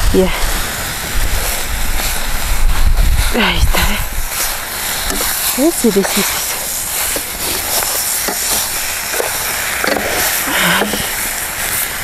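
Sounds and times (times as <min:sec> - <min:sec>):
pork sizzling in a metal pan: 0:00.0 - 0:12.0
wooden spatula scraping and knocking: 0:04.4 - 0:11.2.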